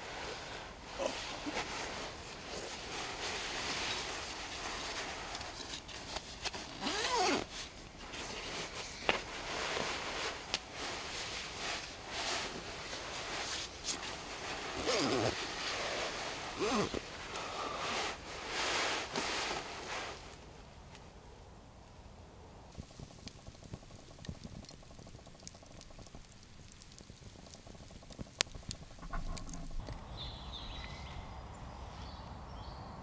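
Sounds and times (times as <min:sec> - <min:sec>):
sleeping bag rustling: 0:00.0 - 0:20.4
zipper pulls: 0:05.6 - 0:08.4, 0:14.6 - 0:17.0.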